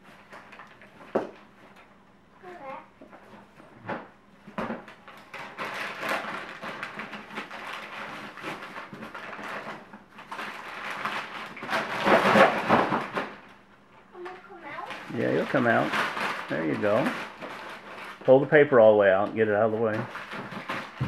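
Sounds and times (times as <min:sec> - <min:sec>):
paper and cardboard rustling: 0:02.6 - 0:13.5, 0:14.2 - 0:18.5, 0:19.8 - 0:21.0.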